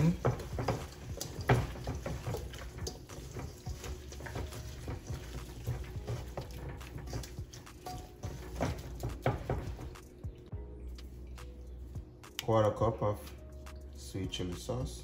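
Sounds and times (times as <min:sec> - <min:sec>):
wet squishing and slapping: 0:00.0 - 0:11.6.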